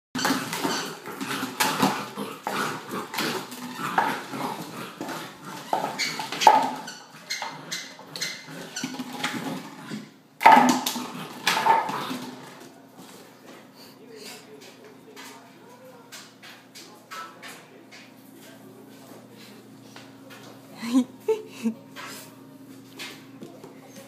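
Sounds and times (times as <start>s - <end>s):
plastic bottle rattling on floor: 0.2s - 7.5s, 8.6s - 12.7s.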